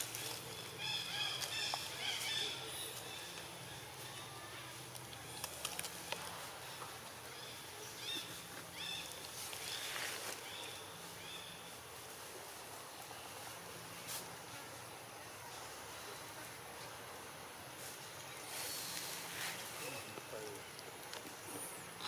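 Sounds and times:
hiss-like burst of noise: 0:17.8 - 0:19.8.

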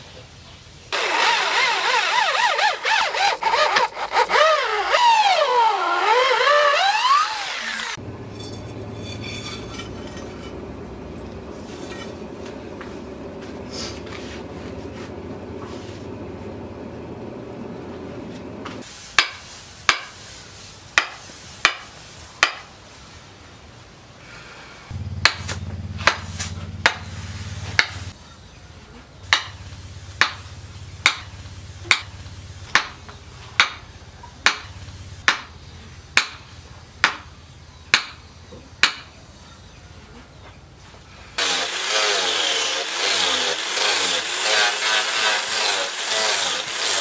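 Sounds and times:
electric drill boring into wood: 0:01.0 - 0:08.0, 0:41.4 - 0:47.0.

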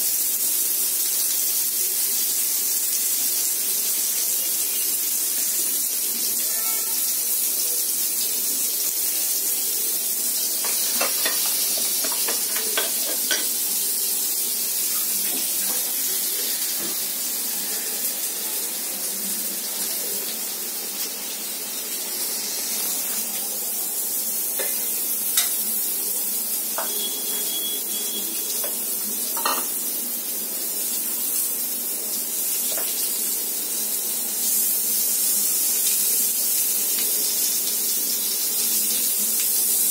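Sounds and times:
food sizzling on a hot griddle: 0:00.0 - 0:39.9.

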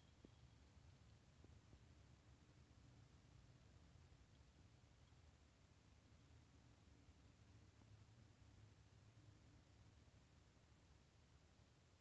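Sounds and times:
faint soft ticks: 0:00.0 - 0:02.0, 0:03.8 - 0:05.4
faint low hum: 0:00.0 - 0:12.0.

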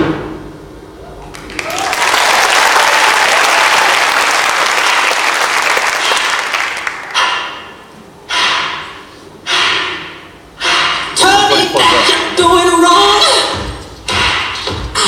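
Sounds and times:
audience applauding: 0:01.3 - 0:07.2.

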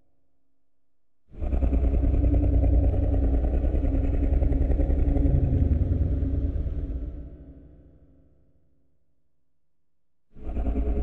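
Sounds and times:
low fluttering engine-like rumble: 0:01.4 - 0:07.8, 0:10.4 - 0:11.0.

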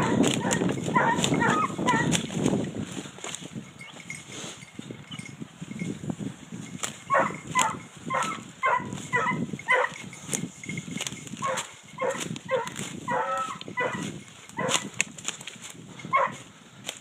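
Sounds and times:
hound yelping: 0:00.0 - 0:02.2, 0:07.1 - 0:10.0, 0:11.4 - 0:14.9, 0:16.1 - 0:16.4
footsteps rustling through forest litter: 0:00.0 - 0:04.7, 0:05.8 - 0:17.0.

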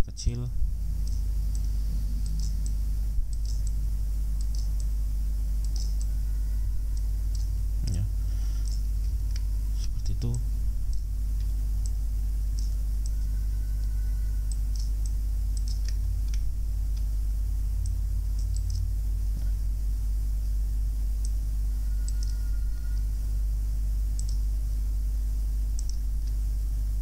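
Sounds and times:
low electrical hum: 0:00.0 - 0:27.0
computer mouse clicking: 0:01.0 - 0:03.8, 0:04.4 - 0:04.9, 0:05.6 - 0:06.2, 0:06.9 - 0:07.5, 0:08.6 - 0:09.5, 0:10.3 - 0:17.1, 0:17.8 - 0:18.9, 0:21.2 - 0:23.1, 0:24.2 - 0:24.4, 0:25.8 - 0:26.4.

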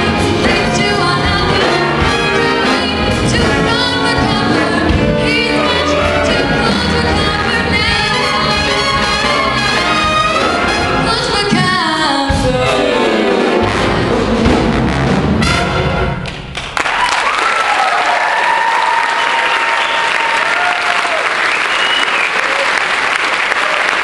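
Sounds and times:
jazz big band playing: 0:00.0 - 0:16.5
woman singing: 0:00.1 - 0:08.6, 0:11.0 - 0:13.1
audience applause and cheering: 0:16.2 - 0:24.0.

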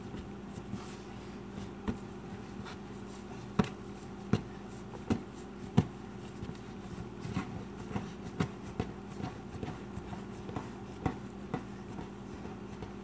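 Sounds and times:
low steady hum: 0:00.0 - 0:13.0
dull knocks of dough on countertop: 0:03.5 - 0:13.0.

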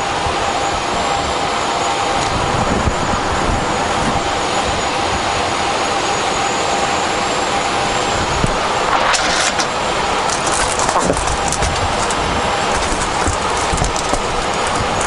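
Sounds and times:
auxiliary power unit whining: 0:00.0 - 0:15.0
sharp handling clicks: 0:10.3 - 0:15.0.

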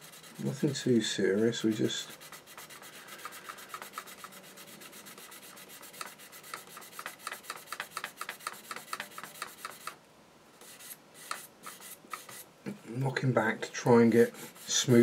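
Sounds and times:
sanding stick rubbing plastic: 0:00.0 - 0:10.0, 0:14.2 - 0:15.0.

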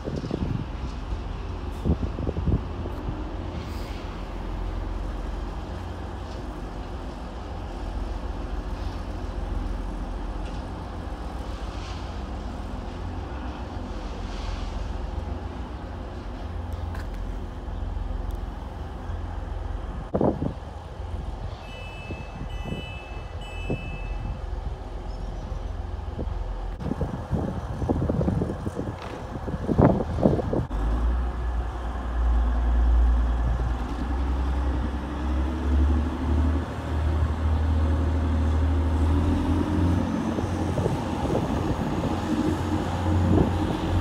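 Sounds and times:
train diesel engines humming: 0:00.0 - 0:44.0
high beeps: 0:21.7 - 0:24.4.

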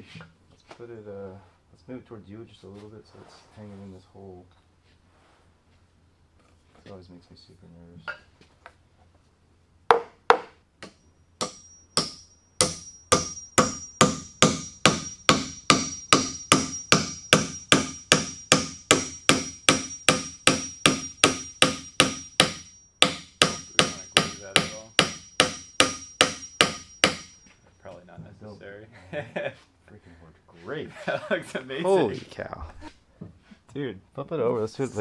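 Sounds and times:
hammer blows on wooden peg: 0:09.9 - 0:27.5
thin high ring: 0:11.0 - 0:18.6.

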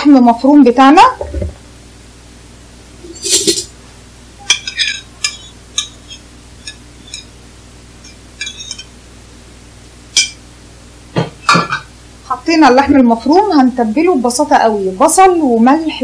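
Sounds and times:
metal spoon clinking on plate: 0:04.4 - 0:07.3, 0:08.0 - 0:08.9.

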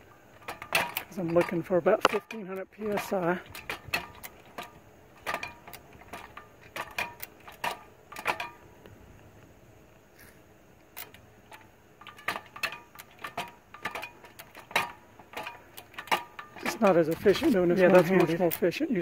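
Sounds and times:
hydraulic hand pump clicking: 0:00.0 - 0:08.7, 0:10.9 - 0:19.0.

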